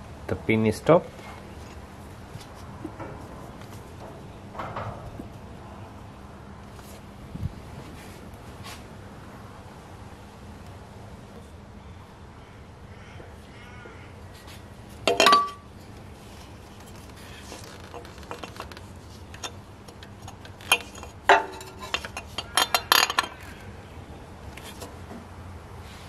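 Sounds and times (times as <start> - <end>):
metal parts and tools clinking: 15.1 - 15.6, 19.3 - 23.5.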